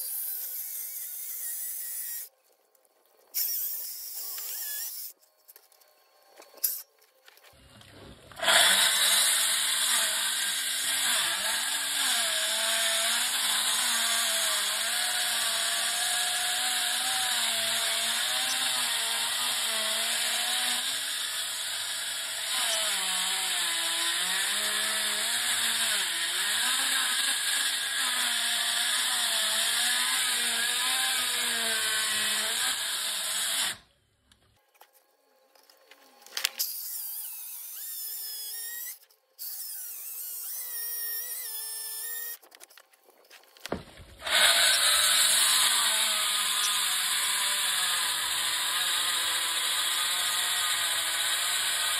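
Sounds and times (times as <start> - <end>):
concrete saw whining through concrete: 7.7 - 33.9, 43.7 - 51.9.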